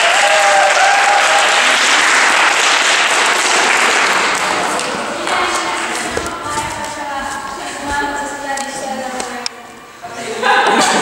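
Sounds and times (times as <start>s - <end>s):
audience cheering: 0.0s - 4.6s
audience clapping: 0.0s - 7.0s.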